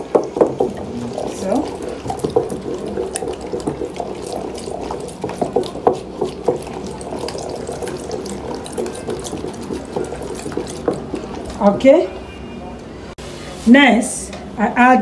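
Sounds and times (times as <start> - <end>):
stick knocking plastic bowl: 0.0 - 11.6
thick liquid sloshing when stirred: 0.0 - 12.2.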